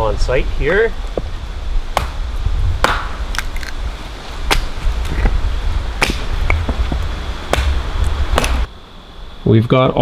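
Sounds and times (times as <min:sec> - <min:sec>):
hatchet chopping wood: 0:01.9 - 0:02.2, 0:02.8 - 0:03.5, 0:06.0 - 0:06.3, 0:07.5 - 0:07.8, 0:08.4 - 0:08.6.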